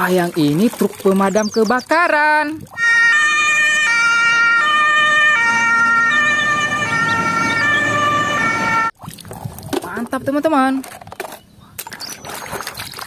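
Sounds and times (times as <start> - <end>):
fire engine two-tone siren: 2.8 - 8.9.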